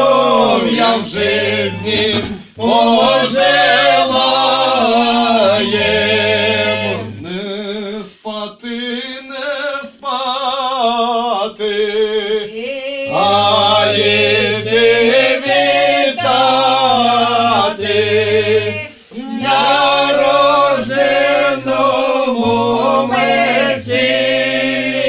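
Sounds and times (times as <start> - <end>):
low voice singing: 0.0 - 9.4, 11.3 - 25.0
folk group singing unaccompanied: 0.0 - 12.3, 13.1 - 25.0.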